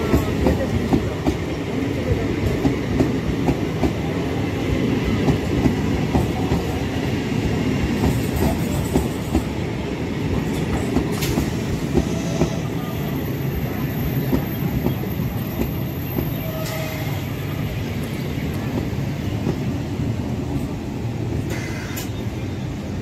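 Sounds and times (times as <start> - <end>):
train rumble: 0.0 - 23.0
train wheels clicking over rail joints: 10.3 - 12.6.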